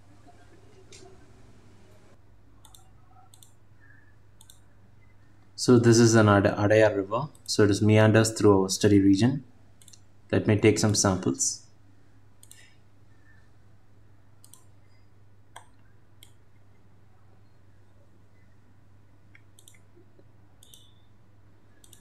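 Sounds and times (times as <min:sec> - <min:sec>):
low steady hum: 0:00.0 - 0:22.0
faint mouse clicks: 0:02.6 - 0:04.7, 0:09.8 - 0:10.1, 0:12.4 - 0:12.7, 0:14.4 - 0:16.4, 0:19.3 - 0:21.0, 0:21.8 - 0:22.0.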